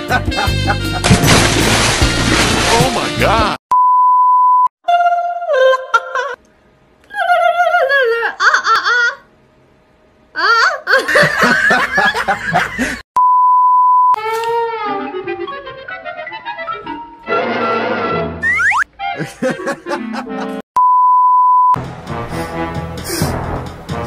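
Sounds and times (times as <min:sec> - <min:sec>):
test-tone beep: 0:13.2 - 0:14.2, 0:20.8 - 0:21.8.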